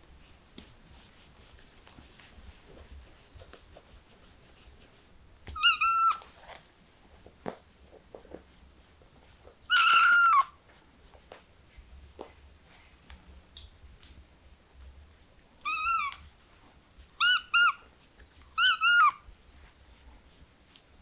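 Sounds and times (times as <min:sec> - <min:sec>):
kitten meowing: 0:05.5 - 0:06.3, 0:09.7 - 0:10.6, 0:15.6 - 0:16.3, 0:17.2 - 0:17.8, 0:18.6 - 0:19.2.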